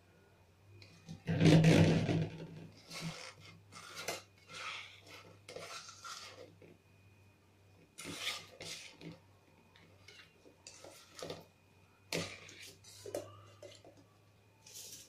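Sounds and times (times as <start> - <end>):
low steady hum: 0.0 - 15.0
spoon scraping metal pot: 2.7 - 6.6, 8.0 - 9.2, 10.0 - 11.5, 12.1 - 14.0.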